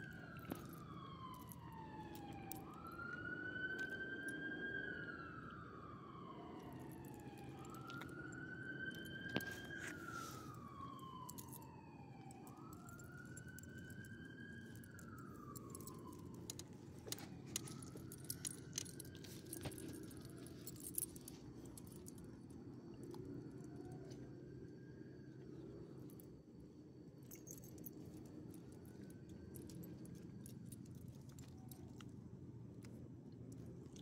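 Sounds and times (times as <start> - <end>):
faint siren wailing: 0.0 - 26.6, 27.2 - 32.4
dog collar jingling: 15.3 - 22.1.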